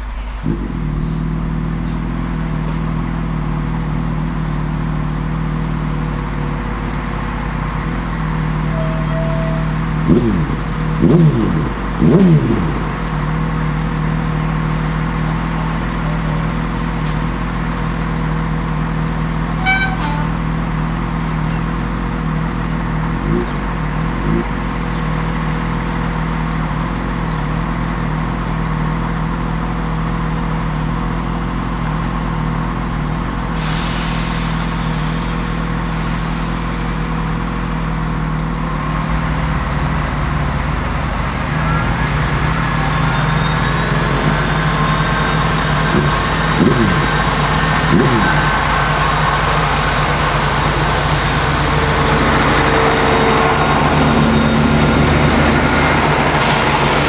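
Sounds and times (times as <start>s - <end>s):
level crossing alarm: 8.7s - 9.9s.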